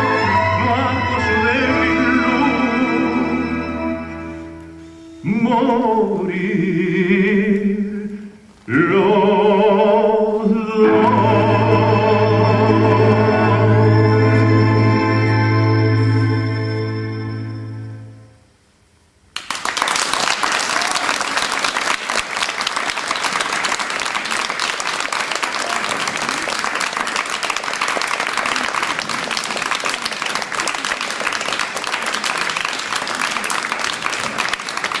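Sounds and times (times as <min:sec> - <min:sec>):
audience applauding: 0:19.4 - 0:35.0.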